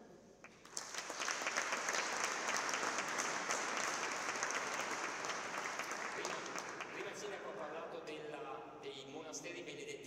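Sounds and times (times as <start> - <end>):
audience applause: 0.6 - 7.3.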